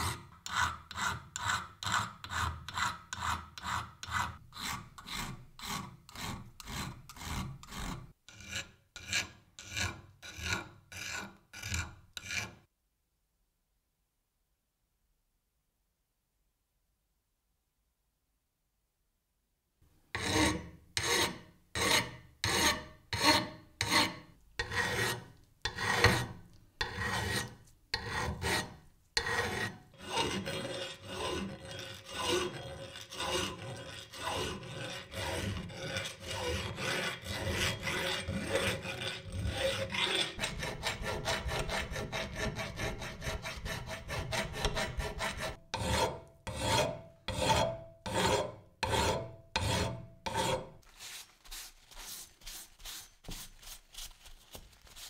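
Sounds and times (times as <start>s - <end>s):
file rasping on metal: 0.0s - 12.7s, 20.2s - 50.8s.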